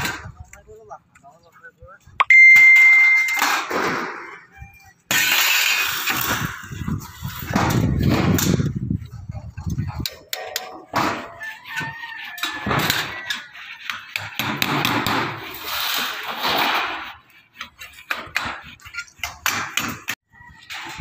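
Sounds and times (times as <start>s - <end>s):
rooster crowing: 11.3s - 13.6s.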